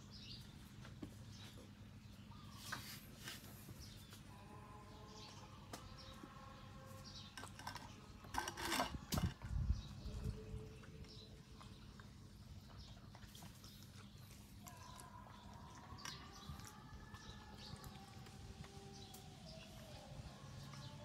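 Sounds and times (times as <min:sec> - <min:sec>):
low steady hum: 0:00.0 - 0:21.0
puppy chewing crunchy vegetables: 0:05.2 - 0:21.0.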